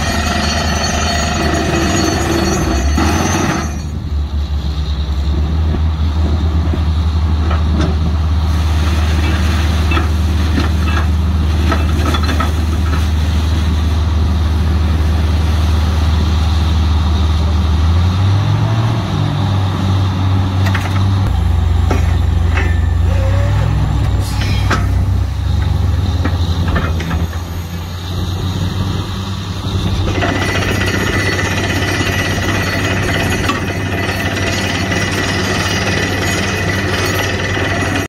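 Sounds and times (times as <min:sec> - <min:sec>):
drilling rig diesel engine: 0:00.0 - 0:38.0
short metal clanks: 0:21.8 - 0:23.0.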